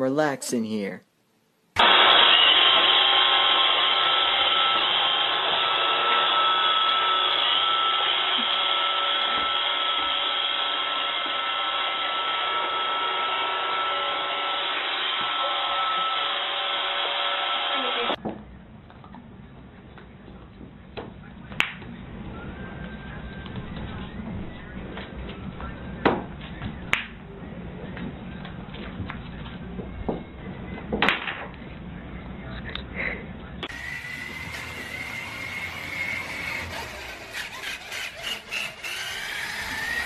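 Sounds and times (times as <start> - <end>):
robot vacuum motor whirring: 1.8 - 11.5, 33.7 - 40.0.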